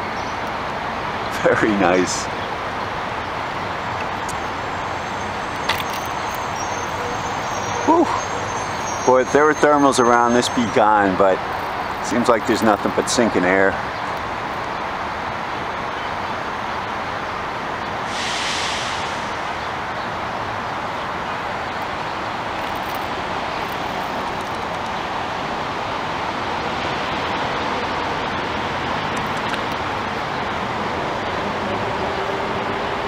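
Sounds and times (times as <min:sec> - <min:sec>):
distant road traffic roar: 0:00.0 - 0:33.0
brief higher hiss: 0:18.0 - 0:20.3.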